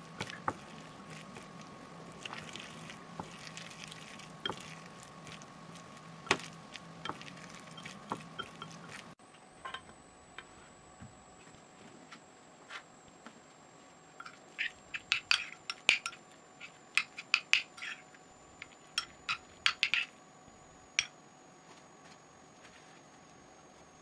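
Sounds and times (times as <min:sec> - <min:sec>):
cutlery and dishes clinking: 0:19.0 - 0:20.1.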